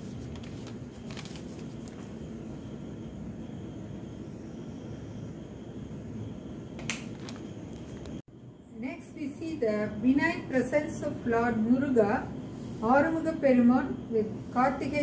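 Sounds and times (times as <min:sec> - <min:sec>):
low rumbling background noise: 0:00.0 - 0:15.0.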